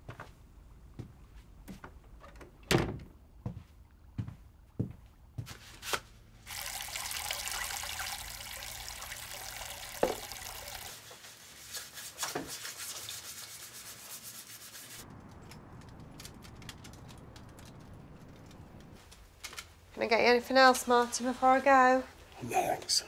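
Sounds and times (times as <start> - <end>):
water running: 6.4 - 11.1.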